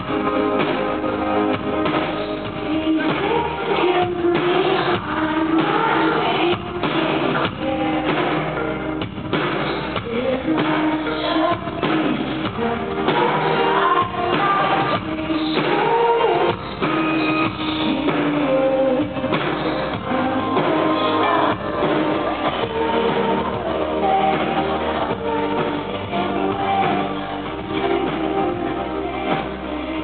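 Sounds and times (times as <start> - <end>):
guitar: 0.0 - 30.0
keyboards: 0.0 - 30.0
steady drum beat: 0.0 - 30.0
woman singing lead: 0.0 - 30.0.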